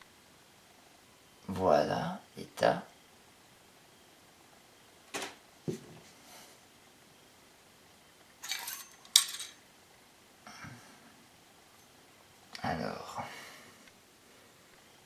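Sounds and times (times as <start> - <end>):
metal parts clinking and scraping: 8.4 - 9.6.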